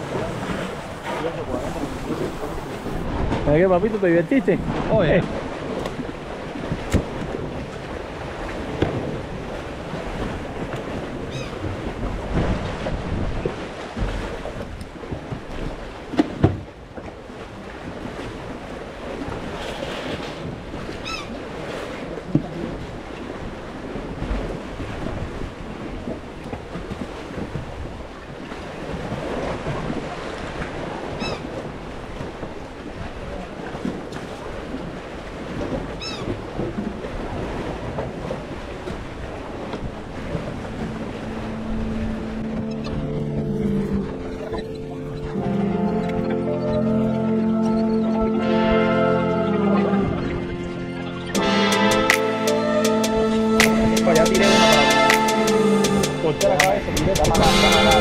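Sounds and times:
water noise: 0.0s - 58.0s
wind: 0.0s - 58.0s
background music: 40.8s - 58.0s.

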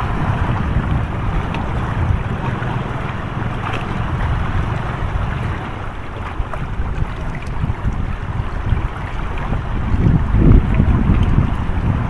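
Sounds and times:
water lapping against rocks: 0.0s - 12.0s
wind buffeting microphone: 0.0s - 12.0s.

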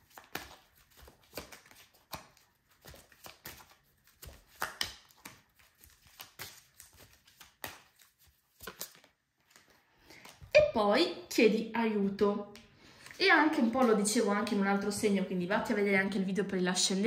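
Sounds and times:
cards being shuffled: 0.0s - 10.5s.

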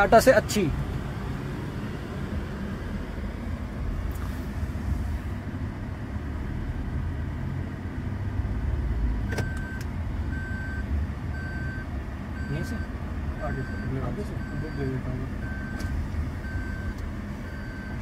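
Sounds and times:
car engine low rumble: 0.0s - 18.0s.

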